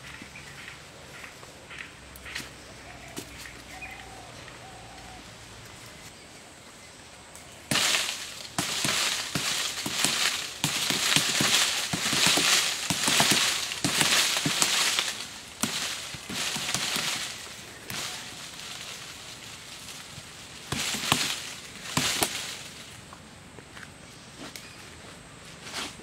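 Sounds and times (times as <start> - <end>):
rustling: 7.4 - 23.3
bamboo poles clattering: 7.7 - 23.2.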